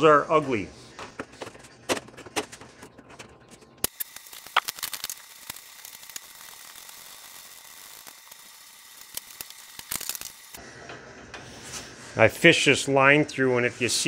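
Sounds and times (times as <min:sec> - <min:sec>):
steady hiss: 0:03.9 - 0:10.6.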